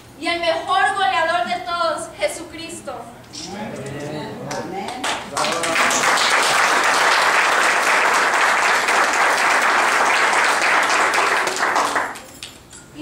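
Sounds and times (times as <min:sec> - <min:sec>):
audience applauding: 0:04.5 - 0:12.4.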